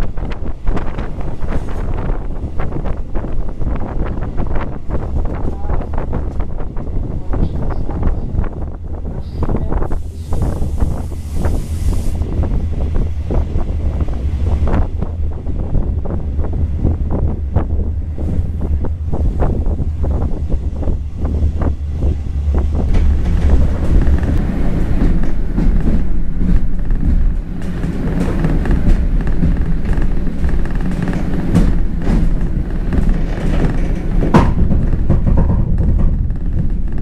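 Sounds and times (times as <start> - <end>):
train rumbling: 0.0 - 37.0
running gear knocks and clicks: 22.8 - 37.0.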